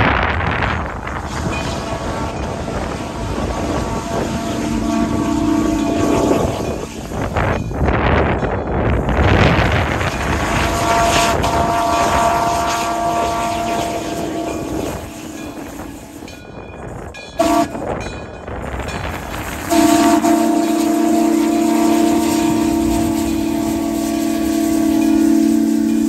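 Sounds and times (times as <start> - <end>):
steam locomotive rumbling: 0.0 - 26.0
steam whistle blasts: 1.2 - 7.4, 9.8 - 16.3, 17.4 - 18.0, 19.5 - 26.0.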